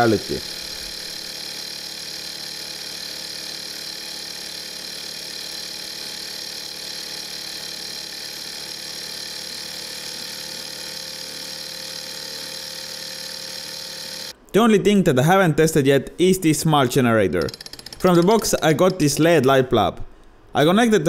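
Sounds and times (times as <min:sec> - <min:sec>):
small engine flywheel whirring: 0:00.0 - 0:14.4, 0:17.4 - 0:18.3.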